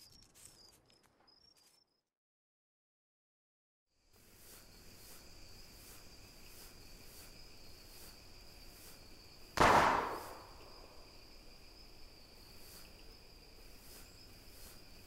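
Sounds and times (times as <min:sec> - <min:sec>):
insects chirping: 0:00.0 - 0:02.1, 0:03.9 - 0:15.0
gunshot with echo: 0:09.6 - 0:10.6.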